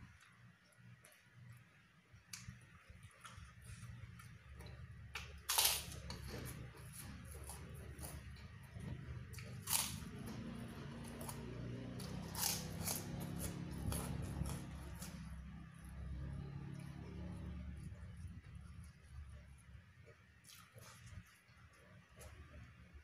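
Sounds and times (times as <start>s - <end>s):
chewing crackles: 0.0s - 22.7s
steady low hum: 0.0s - 23.0s
cracker crunching: 2.3s - 15.4s.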